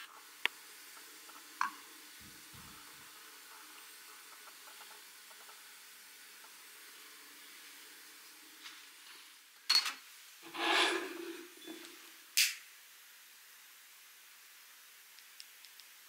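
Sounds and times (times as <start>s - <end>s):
gas hissing: 0.0s - 9.5s, 10.1s - 12.6s.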